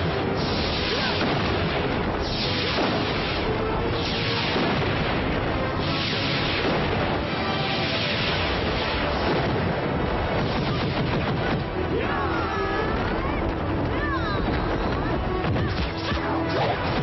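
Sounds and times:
booming blast effects: 0.0s - 12.0s
dense film music: 0.0s - 17.0s.

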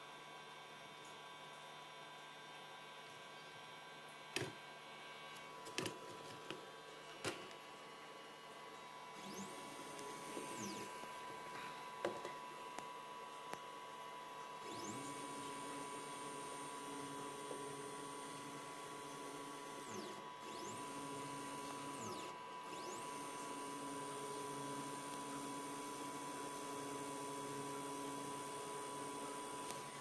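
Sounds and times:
machine hum: 3.8s - 30.0s
router spindle whine: 8.8s - 30.0s.

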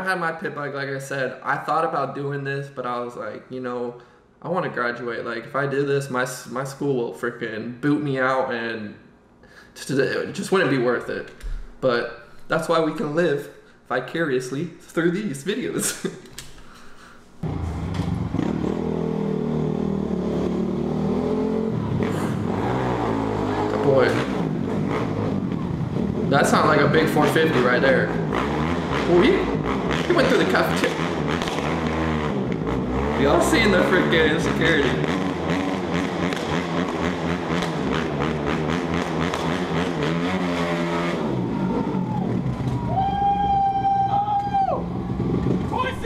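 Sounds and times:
dirt bike engine revving: 17.4s - 44.0s, 44.8s - 46.0s.

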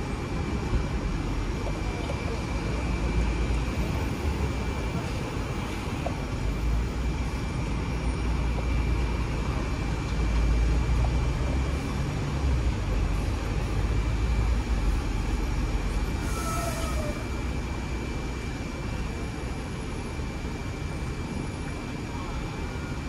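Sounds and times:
high whine of tram: 0.0s - 23.0s
street traffic: 0.0s - 23.0s
tram rumbling on rails: 0.0s - 23.0s.

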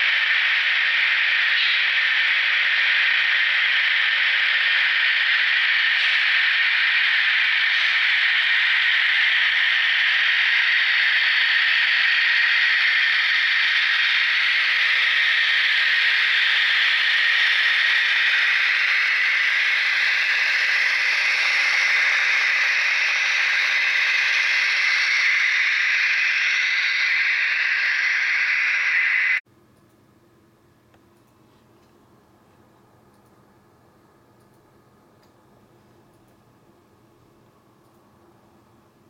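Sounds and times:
model train engine sound from speaker: 0.0s - 29.4s.

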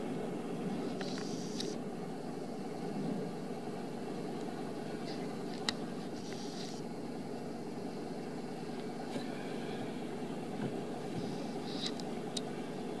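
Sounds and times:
low background rumble: 0.0s - 13.0s.

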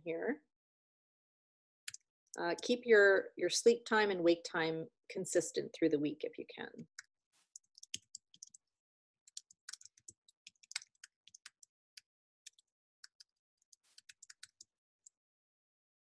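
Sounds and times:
keyboard typing clicks: 7.6s - 8.6s, 9.3s - 11.7s.

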